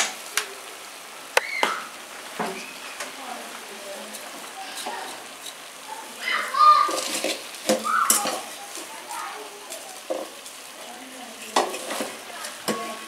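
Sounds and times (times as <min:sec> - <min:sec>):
wooden spoon scraping metal pot: 0:04.0 - 0:05.8, 0:06.8 - 0:10.5, 0:11.4 - 0:13.0.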